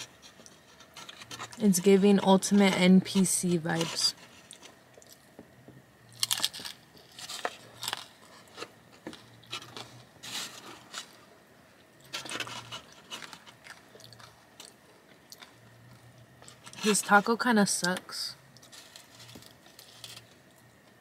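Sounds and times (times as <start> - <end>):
chewing crisp taco: 4.3 - 5.4, 6.0 - 16.8, 18.5 - 21.0.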